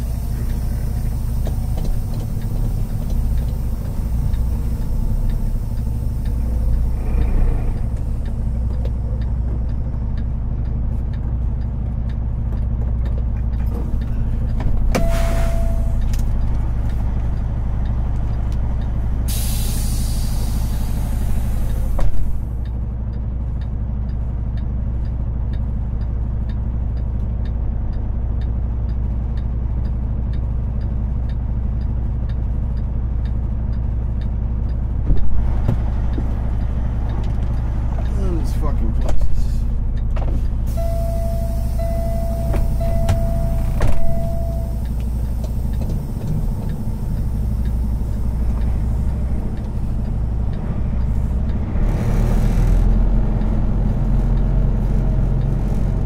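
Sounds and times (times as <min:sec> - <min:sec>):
diesel truck engine running: 0:00.0 - 0:56.0
air brake hiss: 0:15.0 - 0:16.0, 0:19.3 - 0:22.0
short beep: 0:15.0 - 0:16.1, 0:40.7 - 0:44.8.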